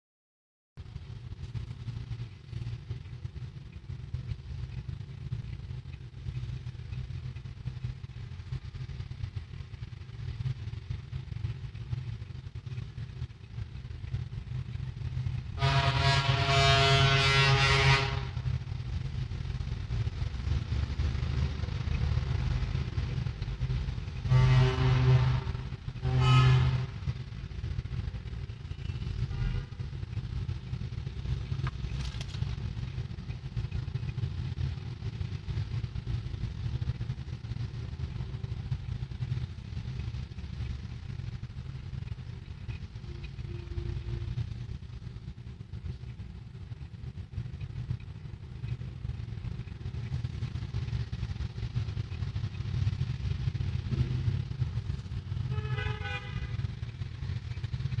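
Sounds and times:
road traffic rumble: 0.8s - 58.0s
short horn tone: 15.6s - 18.4s, 24.3s - 26.9s.

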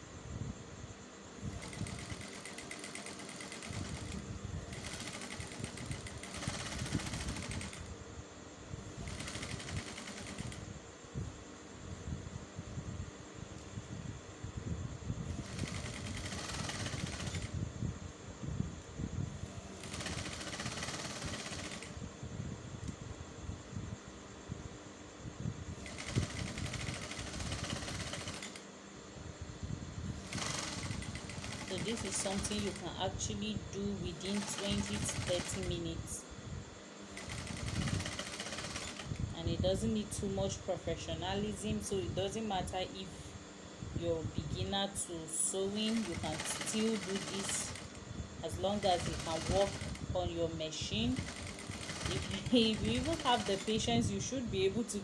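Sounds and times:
sewing machine stitching: 1.5s - 7.9s, 9.0s - 10.6s, 15.3s - 17.5s, 19.6s - 21.9s, 25.8s - 28.6s, 30.2s - 33.0s, 34.1s - 35.8s, 37.1s - 39.1s, 45.6s - 50.1s, 50.9s - 53.9s.

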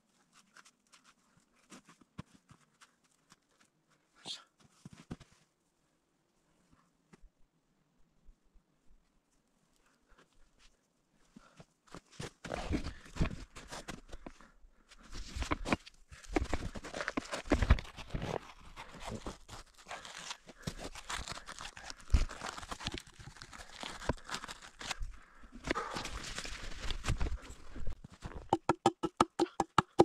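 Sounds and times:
crunching and rustling: 15.6s - 25.1s.

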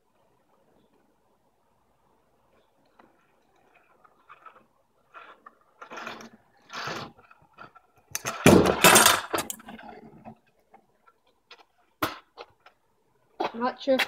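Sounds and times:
scooter wheels rolling: 2.2s - 14.0s
scooter rattles: 3.8s - 9.8s
scooter clattering on pavement: 3.8s - 10.6s.

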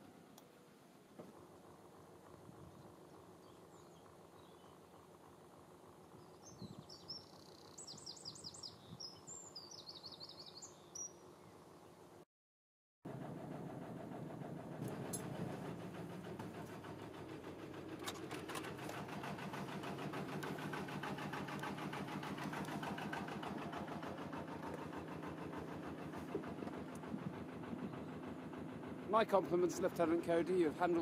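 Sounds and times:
boat engine running: 13.1s - 31.0s.

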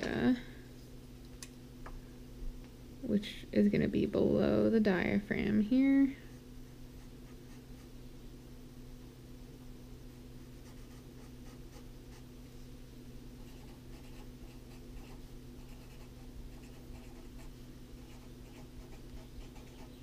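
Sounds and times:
marker scratching on paper: 13.4s - 20.0s.

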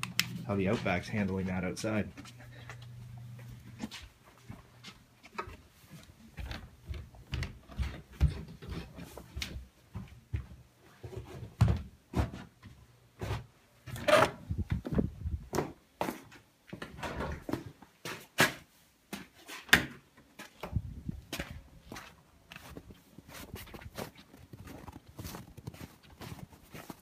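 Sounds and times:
footsteps: 0.0s - 14.0s, 20.4s - 27.0s.

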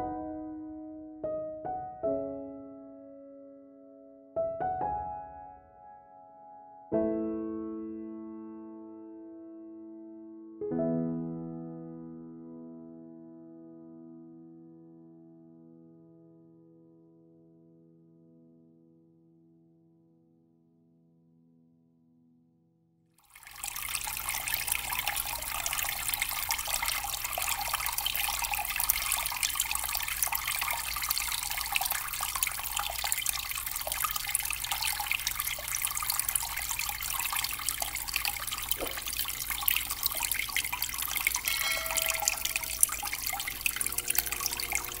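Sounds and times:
fountain water splashing: 23.2s - 45.0s.

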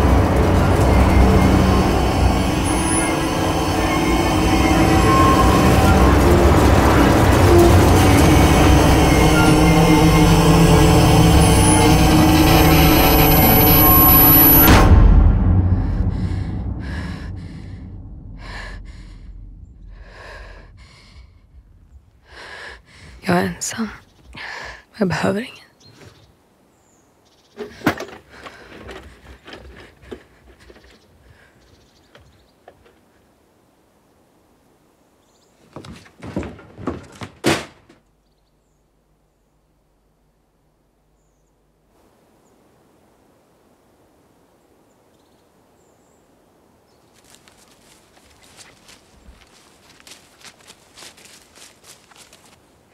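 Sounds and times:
low rumble: 0.0s - 23.3s
woman breathing heavily: 15.7s - 23.3s, 24.3s - 25.0s
door knocks and rattles: 35.8s - 38.0s.

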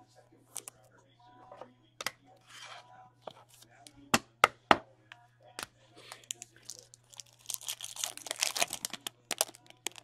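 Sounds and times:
foil pack tearing and crinkling: 6.6s - 10.0s.

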